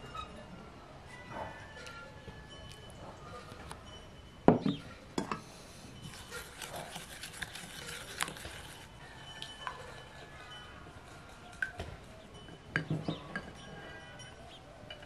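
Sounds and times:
wooden spoon scraping glass bowl: 6.0 - 9.0.

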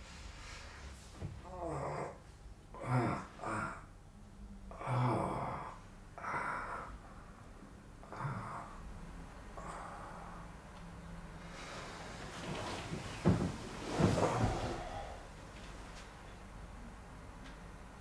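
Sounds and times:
man groaning and sighing: 1.4 - 3.9, 4.7 - 6.8.

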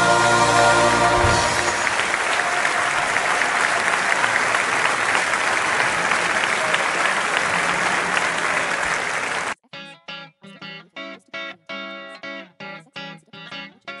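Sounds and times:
audience applause: 0.8 - 9.6.

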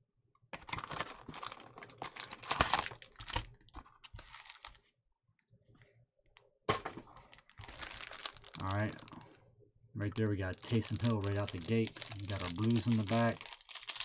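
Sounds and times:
cellophane crackling and rustling: 0.8 - 3.5, 4.2 - 4.8, 7.2 - 9.4, 10.1 - 14.0.

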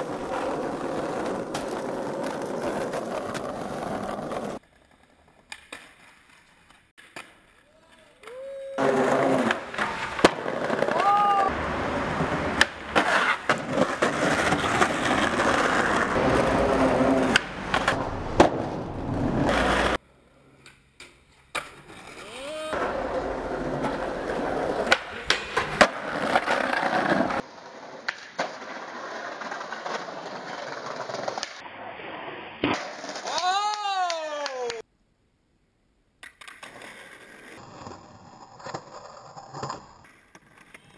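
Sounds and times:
skateboard popping and landing: 0.0 - 33.7, 36.2 - 40.9
skateboard wheels rolling on concrete: 0.0 - 34.9, 36.0 - 40.9.

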